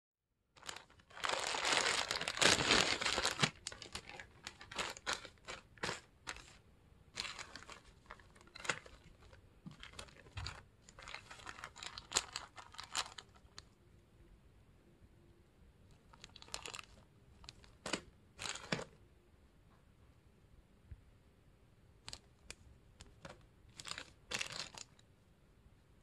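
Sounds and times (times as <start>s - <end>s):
plastic bags crinkling: 0.6s - 13.6s, 16.0s - 19.0s, 23.2s - 25.0s.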